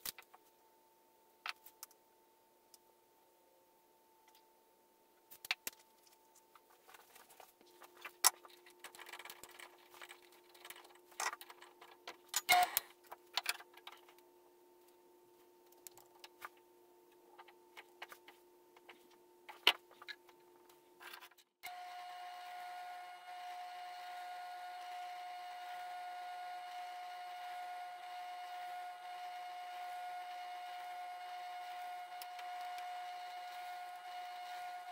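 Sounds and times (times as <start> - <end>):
drill press motor humming: 21.6 - 34.9.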